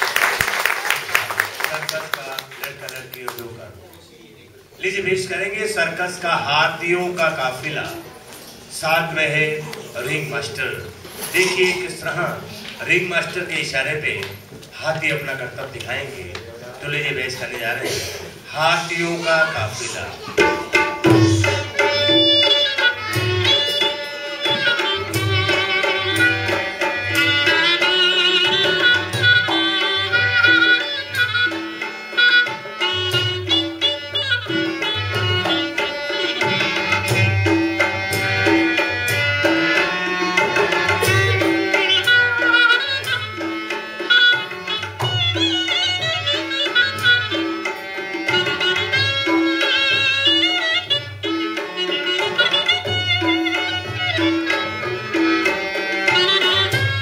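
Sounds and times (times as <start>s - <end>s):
ornamented folk melody: 19.1s - 57.0s
hand drum beat: 20.2s - 57.0s.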